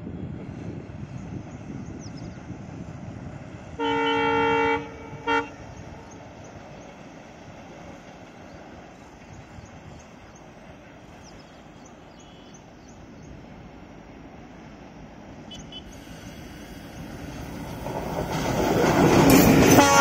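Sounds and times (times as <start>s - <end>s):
locomotive engine rumble: 0.0s - 20.0s
locomotive air horn: 3.8s - 5.7s, 19.7s - 20.0s.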